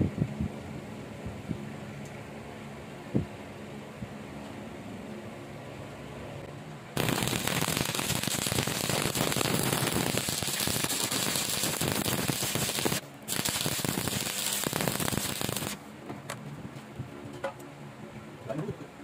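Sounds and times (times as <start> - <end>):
welding arc crackling: 7.0 - 15.8.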